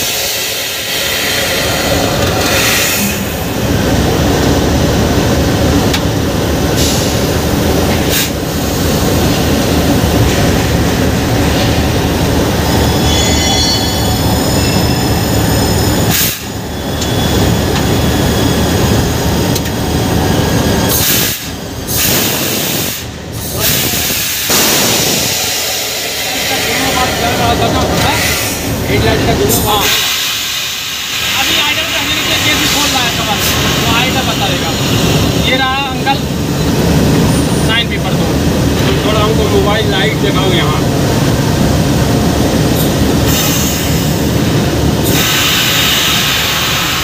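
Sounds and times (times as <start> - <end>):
faint high squealing: 12.6 - 18.9
locomotive rumble with hiss: 42.5 - 47.0.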